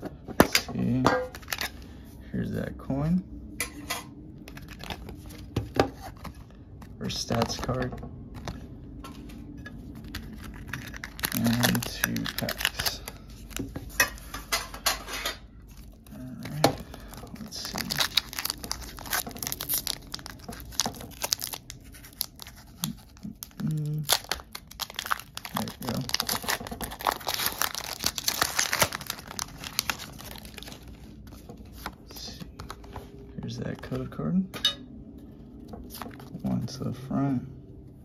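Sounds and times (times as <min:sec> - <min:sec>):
foil wrapper tearing and crinkling: 0:09.9 - 0:14.3, 0:15.7 - 0:32.0.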